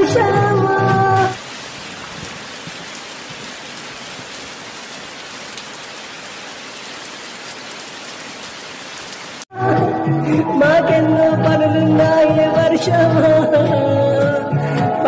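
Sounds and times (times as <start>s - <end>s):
steady rain falling: 0.9s - 9.5s.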